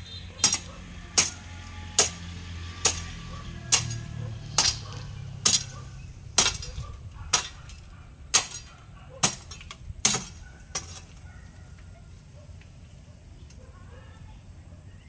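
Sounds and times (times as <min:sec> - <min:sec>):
garden hoe chopping into ground: 0:00.4 - 0:11.2.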